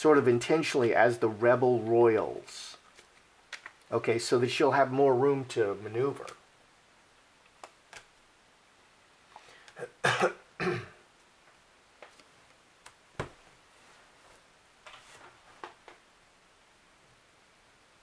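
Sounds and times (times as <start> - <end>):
person coughing: 9.8 - 11.0
playing cards dealt on table: 14.2 - 16.0.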